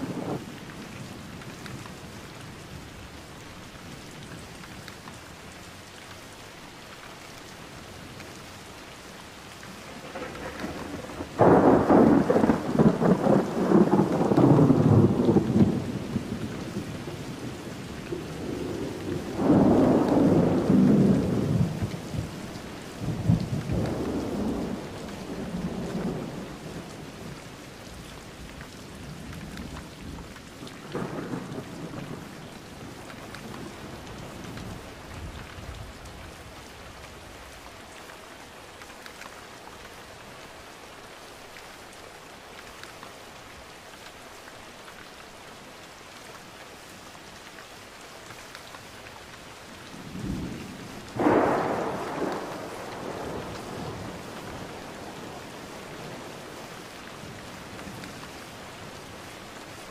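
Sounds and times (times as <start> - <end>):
heavy rain: 0.0 - 59.9
rolling thunder: 9.7 - 16.5, 18.4 - 22.3, 50.0 - 55.3.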